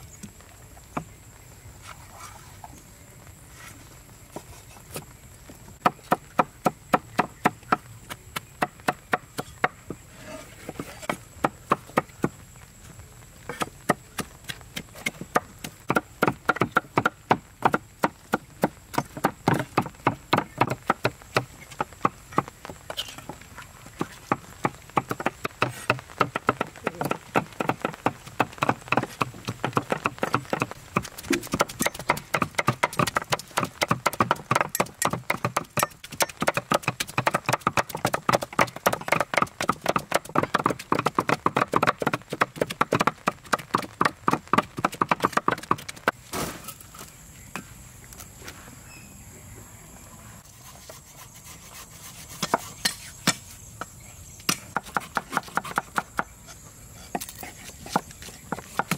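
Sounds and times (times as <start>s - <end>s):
cleaver chopping on wooden board: 24.0s - 46.0s, 54.5s - 56.3s.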